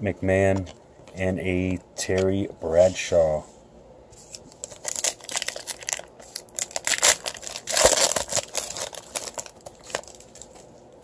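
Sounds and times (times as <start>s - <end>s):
plastic wrapper crinkling: 4.3s - 10.7s.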